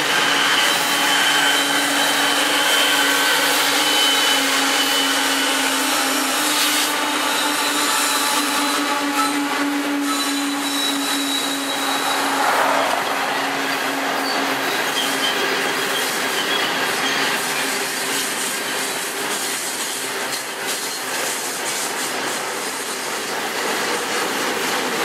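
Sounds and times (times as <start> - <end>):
high wheel squeal: 0.0 - 21.5
freight train rumbling past: 0.0 - 25.0.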